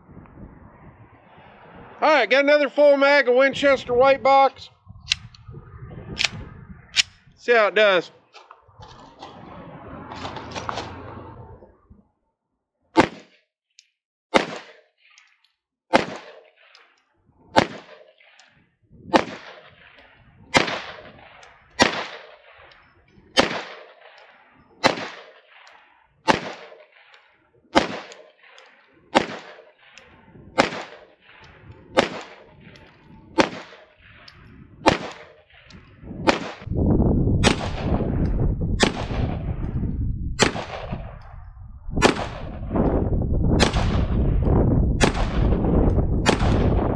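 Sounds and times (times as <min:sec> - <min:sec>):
steady rushing noise: 0:00.0 - 0:12.1, 0:27.8 - 0:46.9
pistol shots: 0:13.0 - 0:13.3, 0:14.3 - 0:14.8, 0:15.9 - 0:16.8, 0:17.5 - 0:36.7, 0:37.4 - 0:38.0, 0:38.8 - 0:39.4, 0:40.4 - 0:41.2, 0:42.0 - 0:42.6, 0:43.6 - 0:44.1, 0:45.0 - 0:45.6, 0:46.2 - 0:46.9.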